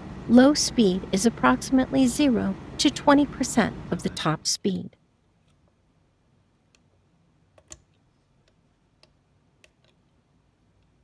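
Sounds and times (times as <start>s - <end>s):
faint clicks and taps: 6.7s - 10.2s.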